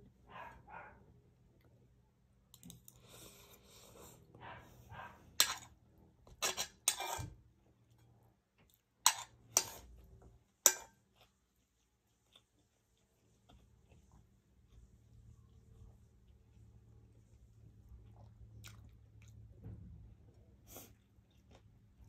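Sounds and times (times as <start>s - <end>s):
cutlery scraping a plate: 5.4s - 7.4s, 9.0s - 10.0s, 10.6s - 11.0s.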